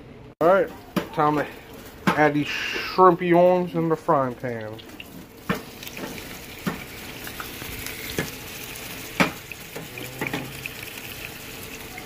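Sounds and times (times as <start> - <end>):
shrimp sizzling in frying pan: 4.9 - 12.0
utensil knocking against pan: 5.5 - 6.9, 9.2 - 10.5.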